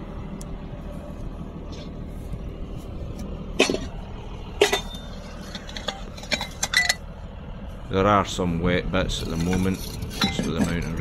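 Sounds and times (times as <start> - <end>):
low rumble: 0.0 - 11.0
metallic clanks of pipe couplings: 3.6 - 3.9, 4.6 - 7.0, 9.3 - 11.0.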